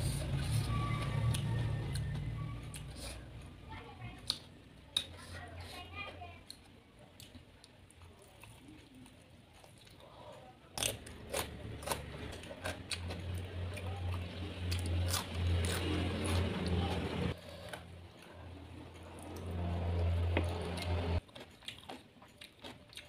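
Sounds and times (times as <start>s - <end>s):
wet biting and chewing: 10.8s - 17.9s, 19.0s - 23.0s.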